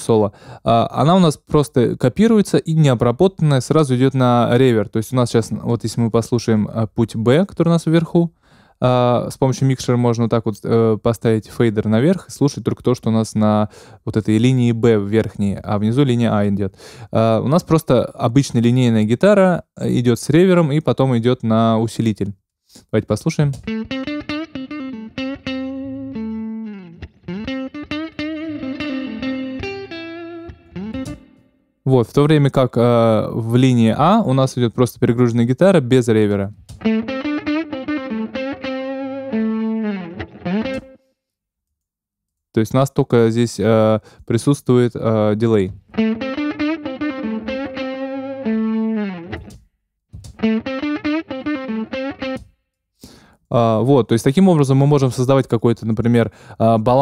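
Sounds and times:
electric guitar blues solo: 23.6s - 31.5s, 36.8s - 41.0s, 45.8s - 49.6s, 50.3s - 52.5s.

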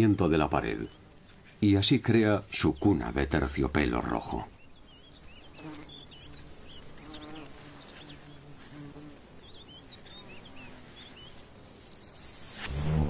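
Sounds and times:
bee buzzing: 0.0s - 13.0s
faint bird chirps: 0.0s - 13.0s
hiss: 11.7s - 13.0s.

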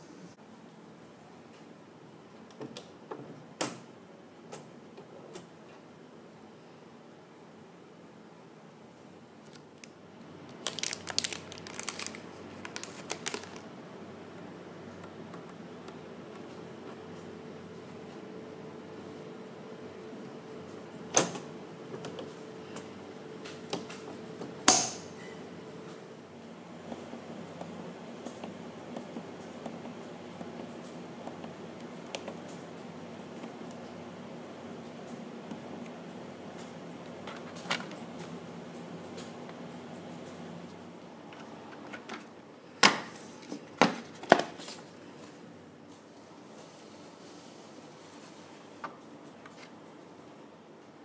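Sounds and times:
steady low hum: 4.0s - 51.0s
packaging crinkling and tearing: 9.4s - 13.7s.

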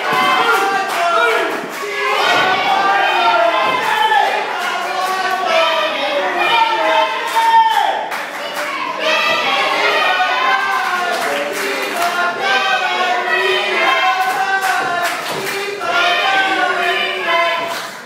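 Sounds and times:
crowd shouting and chanting: 0.0s - 18.0s
claps or thuds: 14.2s - 15.8s.

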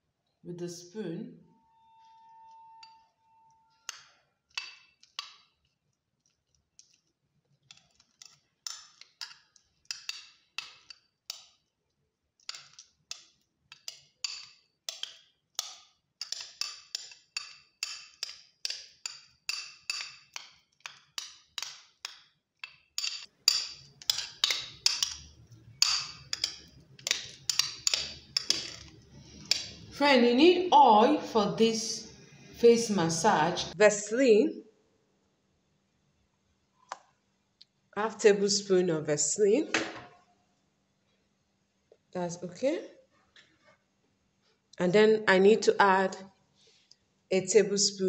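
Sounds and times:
metal spoon mashing in glass bowl: 7.7s - 11.6s, 12.4s - 29.9s.

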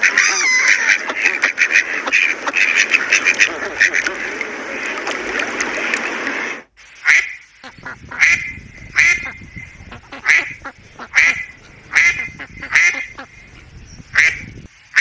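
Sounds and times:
duck quacking: 0.0s - 4.4s, 7.0s - 13.4s, 14.1s - 15.0s.

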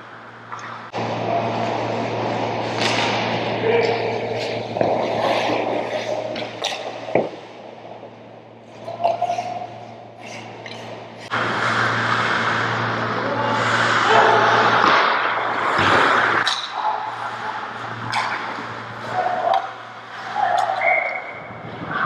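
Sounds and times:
low arena hum: 0.0s - 22.0s
hockey sticks knocking puck: 2.7s - 7.4s
skate blades scraping ice: 4.1s - 7.5s.

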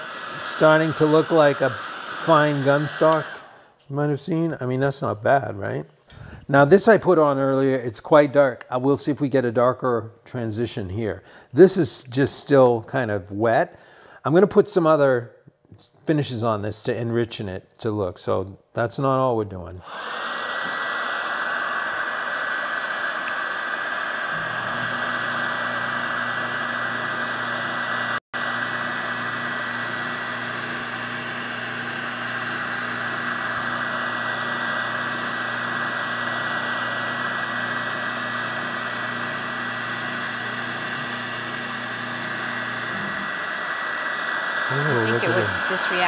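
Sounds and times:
heat gun blowing: 0.0s - 3.8s, 19.8s - 46.0s.

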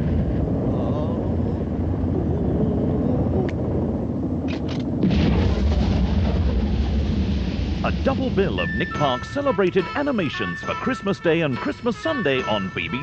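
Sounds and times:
low rumble: 0.0s - 10.2s.

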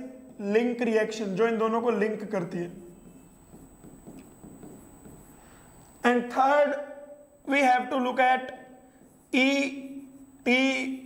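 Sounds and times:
low room hum: 0.0s - 11.0s
stylus tapping on whiteboard: 3.0s - 6.0s, 8.4s - 9.3s.

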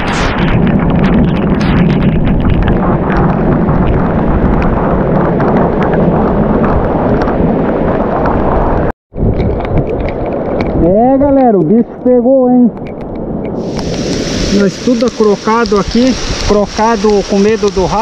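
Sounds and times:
wind buffeting microphone: 0.0s - 18.0s
raindrops ticking on camera: 12.7s - 18.0s
heavy rain: 13.6s - 18.0s.

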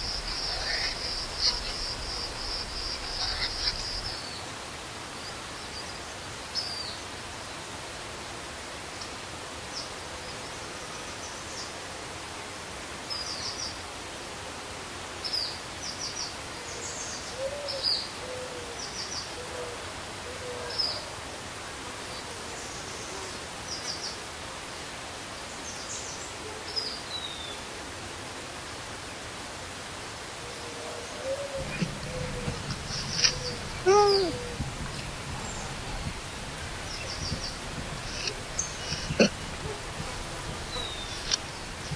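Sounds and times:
soft low hoot-like calls: 0.0s - 4.2s, 30.6s - 41.9s
outdoor background hiss: 0.0s - 41.9s.

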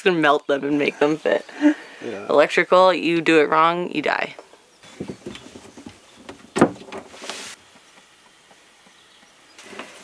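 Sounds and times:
brief hiss: 7.0s - 7.6s.

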